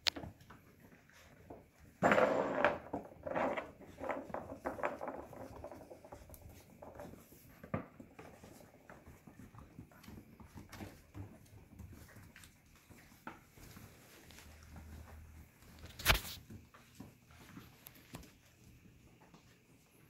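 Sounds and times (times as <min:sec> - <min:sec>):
puppy claws tapping on wood floor: 0:02.5 - 0:12.5.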